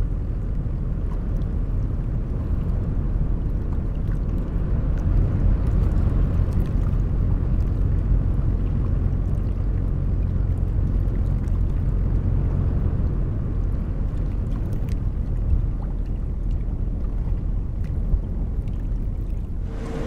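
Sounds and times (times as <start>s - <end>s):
ship engine rumble: 0.0s - 20.0s
bow wave rushing through water: 19.5s - 20.0s.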